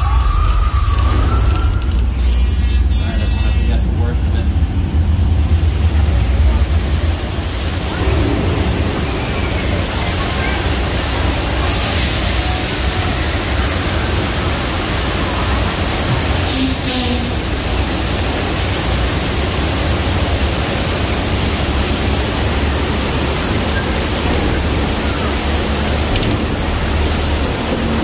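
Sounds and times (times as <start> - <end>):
deep rumble: 0.0 - 16.4
rushing water: 0.0 - 28.0.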